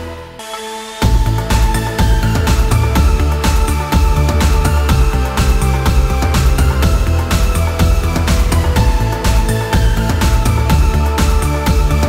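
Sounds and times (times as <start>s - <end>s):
electronic music with steady beat: 0.0s - 12.0s
sustained bass line: 0.0s - 12.0s.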